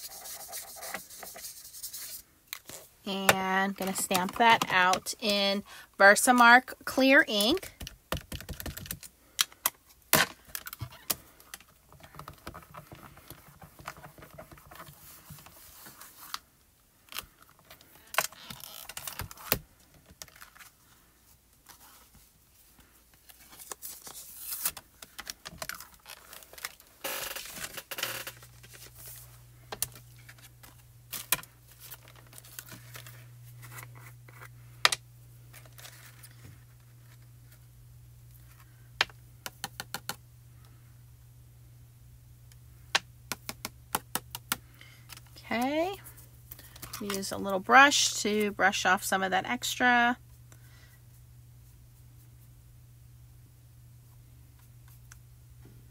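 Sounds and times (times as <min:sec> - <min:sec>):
low steady hum: 0:00.0 - 0:55.9
paper rustling: 0:20.2 - 0:34.5.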